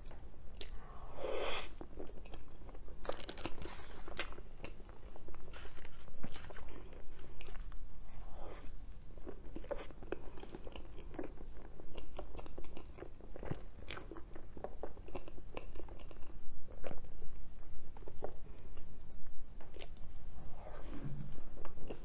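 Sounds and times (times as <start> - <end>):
wet chewing: 9.2 - 20.2.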